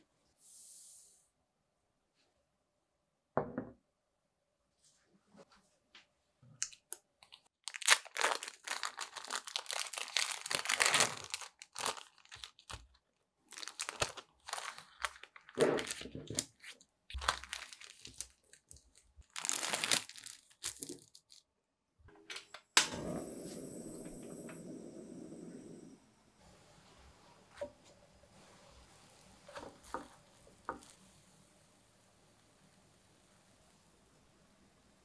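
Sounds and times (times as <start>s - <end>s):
plastic wrappers crinkling and tearing: 6.7s - 21.5s
stove hiss with faint high tones: 22.3s - 35.0s.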